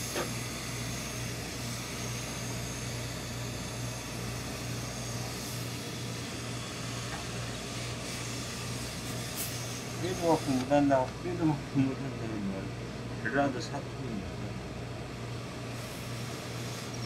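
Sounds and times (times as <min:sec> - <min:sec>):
steam iron hissing: 0:03.8 - 0:10.9, 0:15.7 - 0:17.0.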